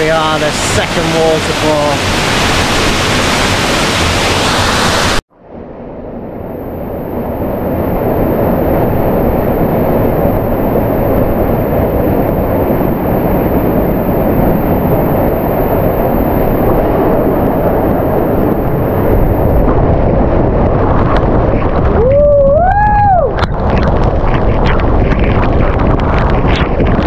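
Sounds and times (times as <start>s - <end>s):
waterfall splashing into pool: 0.0s - 5.2s.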